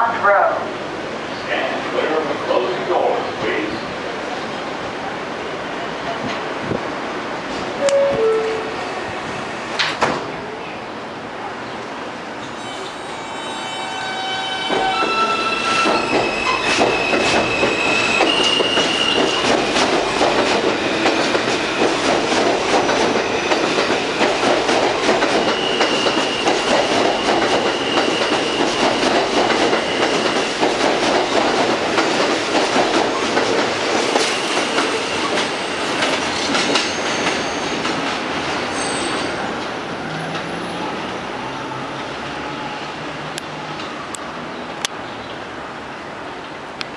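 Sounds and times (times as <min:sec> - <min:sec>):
high wheel squeal: 0:12.6 - 0:19.5, 0:25.4 - 0:30.6, 0:34.3 - 0:37.9, 0:38.7 - 0:39.4
train cars clattering over rail joints: 0:14.7 - 0:38.2.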